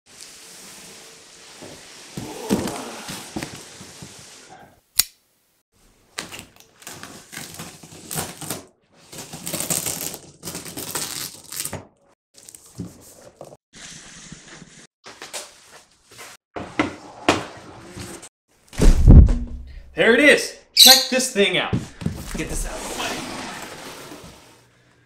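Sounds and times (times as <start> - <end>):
cardboard scraping and rustling: 22.0 - 24.6.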